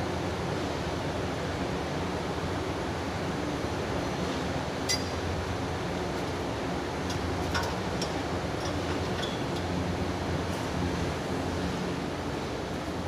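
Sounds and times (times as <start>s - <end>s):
metallic clinks of pipe fittings: 4.9s - 5.2s, 7.1s - 9.8s.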